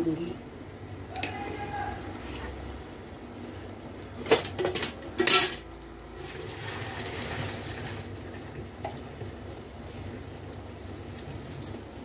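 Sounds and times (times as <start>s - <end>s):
utensils clinking on metal pot: 4.2s - 5.7s.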